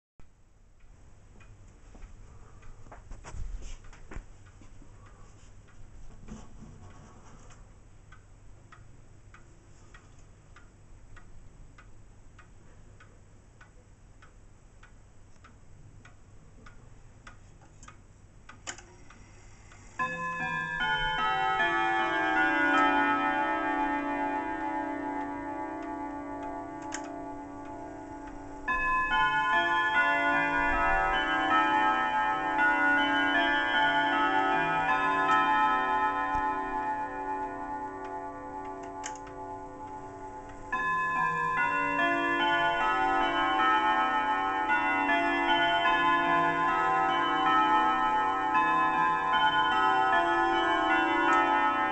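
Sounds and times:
wall clock ticking: 0.6s - 51.9s
clock movement click: 13.6s - 20.6s, 24.0s - 28.8s, 38.0s - 40.8s
clock chime melody: 18.8s - 51.9s.

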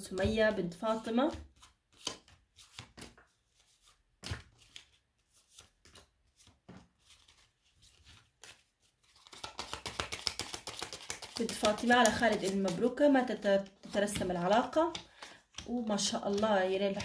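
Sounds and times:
deck of cards shuffling: 0.9s - 17.0s
cards flicking and slapping: 1.5s - 3.2s, 4.2s - 7.4s, 8.3s - 12.9s.

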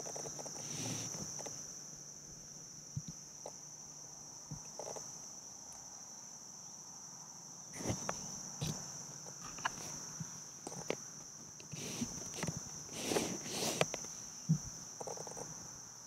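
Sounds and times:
insects droning: 0.0s - 16.0s
handling knocks and rustles: 7.8s - 15.5s.

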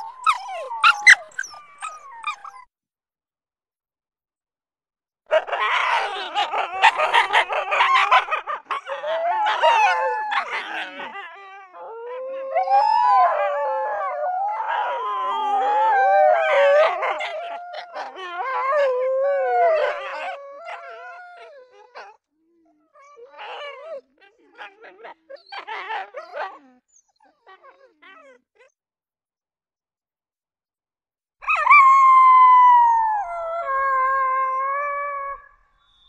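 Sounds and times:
canines howling: 0.0s - 2.6s, 5.3s - 22.2s, 22.8s - 26.7s, 31.4s - 35.6s
dogs yipping and barking: 0.0s - 2.6s, 5.3s - 11.3s, 23.0s - 28.4s.

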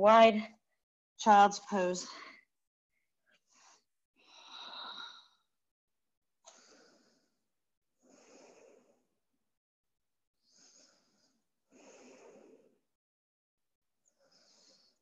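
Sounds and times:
woman breathing deeply: 3.4s - 5.5s, 6.5s - 7.4s, 8.0s - 9.1s, 10.4s - 12.8s, 14.1s - 15.0s.

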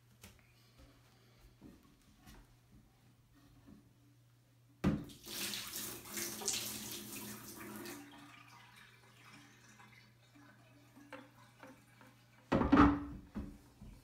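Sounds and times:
water pouring into bathtub: 5.0s - 12.5s.

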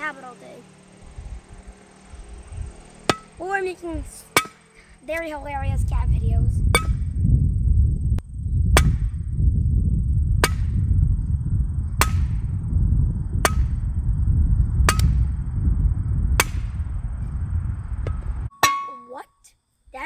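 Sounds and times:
steady low rumble: 0.0s - 18.5s
hammer striking metal: 4.4s - 4.6s, 18.1s - 19.1s.

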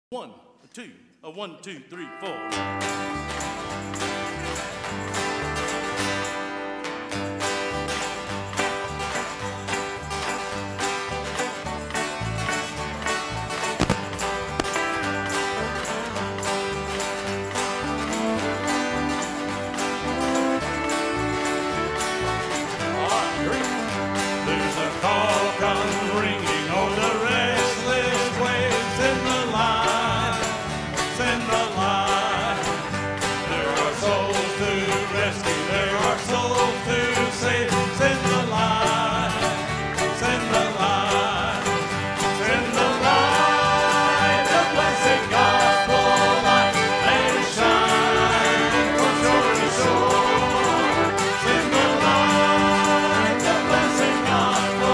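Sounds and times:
banjo picking: 2.1s - 54.9s
bluegrass band playing: 2.1s - 54.9s
strummed acoustic guitars: 2.4s - 54.9s
voices singing: 19.2s - 54.9s.

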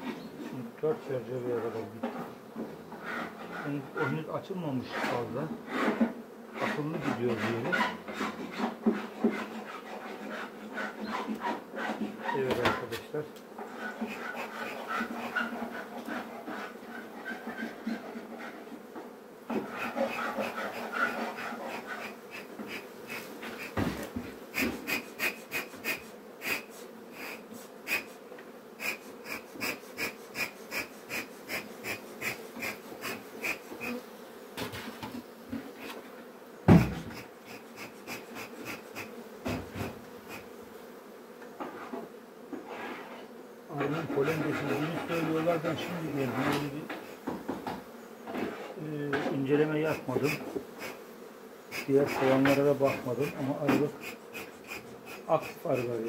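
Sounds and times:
bees buzzing: 0.0s - 56.0s
bellows puffing: 19.5s - 36.0s, 36.8s - 40.6s, 43.8s - 47.3s, 49.8s - 56.0s
loud knock: 36.7s - 37.2s.

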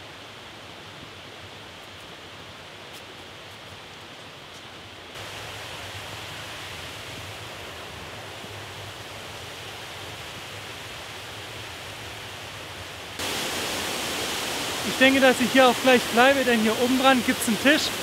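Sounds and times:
waterfall rushing: 5.2s - 18.0s.

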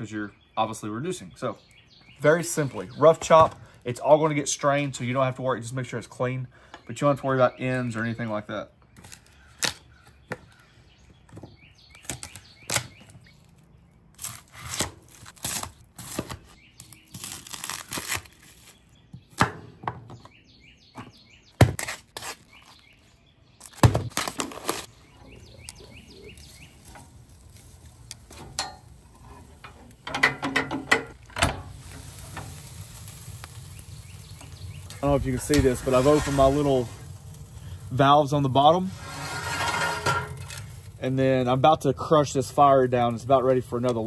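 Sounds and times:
small birds chirping: 0.0s - 14.4s, 16.4s - 30.2s, 31.8s - 39.0s.

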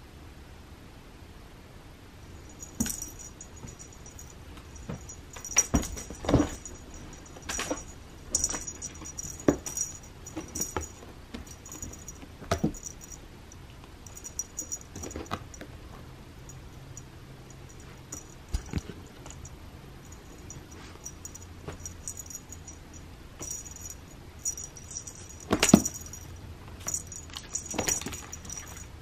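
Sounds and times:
small bell jingling: 2.4s - 15.6s, 16.4s - 29.0s
cat paws thumping and scraping: 2.6s - 13.1s, 23.4s - 28.9s.

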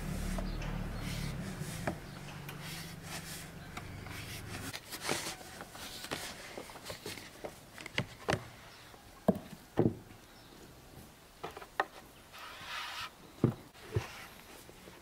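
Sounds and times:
hissing scrape: 0.0s - 4.8s.

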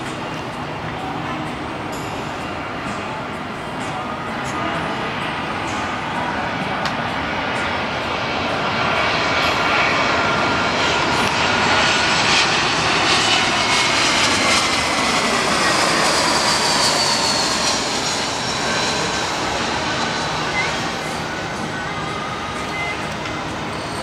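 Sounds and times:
jet airliner passing overhead: 0.0s - 24.0s.

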